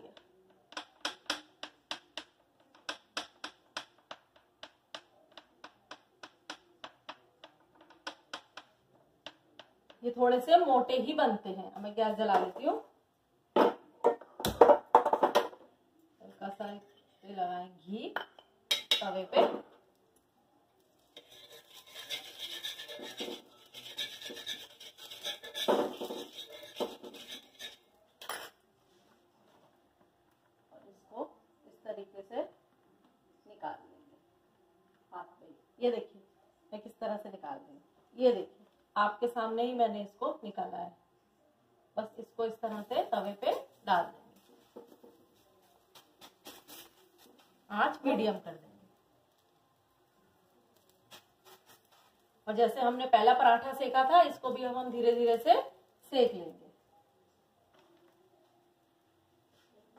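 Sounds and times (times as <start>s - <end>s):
spoon scraping iron pan: 21.1s - 28.6s.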